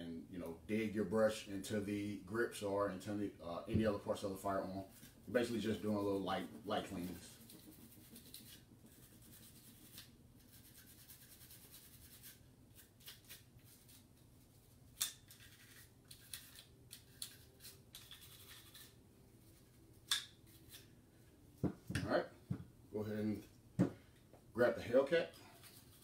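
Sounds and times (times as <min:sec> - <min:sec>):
brush scrubbing plastic: 0:04.3 - 0:14.7.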